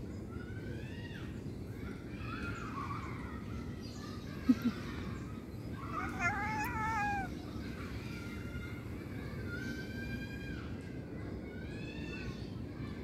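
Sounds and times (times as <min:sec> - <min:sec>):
cat meowing: 0:05.9 - 0:07.3.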